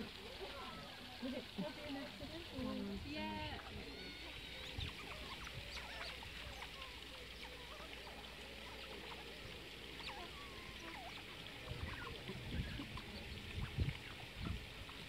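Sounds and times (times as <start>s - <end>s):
otters chirping and squeaking: 3.4s - 15.0s.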